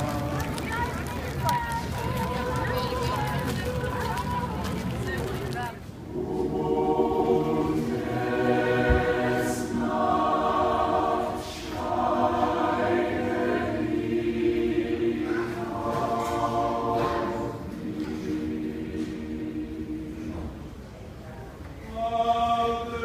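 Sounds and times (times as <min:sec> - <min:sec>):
mixed choir singing: 0:00.0 - 0:00.6, 0:06.0 - 0:21.2, 0:21.8 - 0:23.0.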